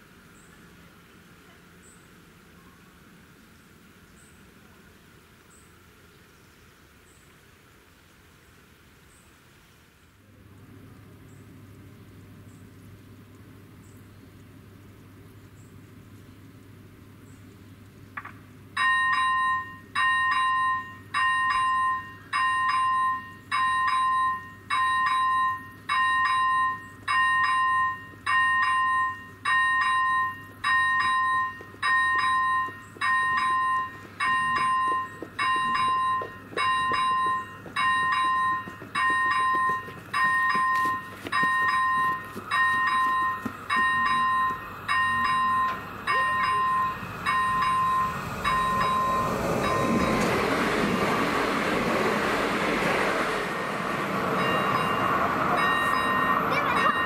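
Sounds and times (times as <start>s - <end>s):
train rumble: 18.2s - 57.0s
level crossing warning bell: 18.7s - 52.6s, 53.7s - 57.0s.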